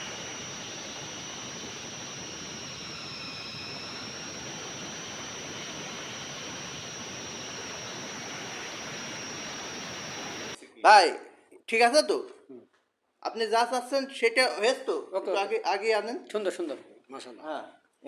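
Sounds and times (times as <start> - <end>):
electric grinder mill whining: 0.0 - 10.6.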